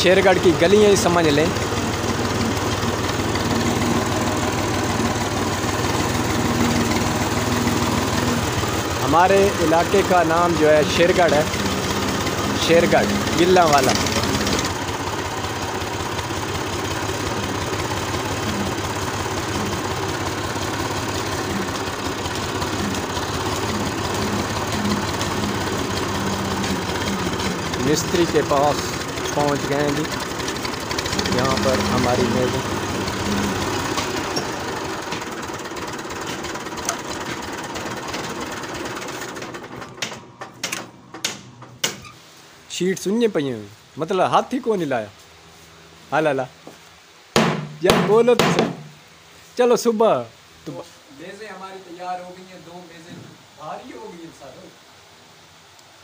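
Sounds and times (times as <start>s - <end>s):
tractor diesel engine chugging: 0.0s - 41.7s.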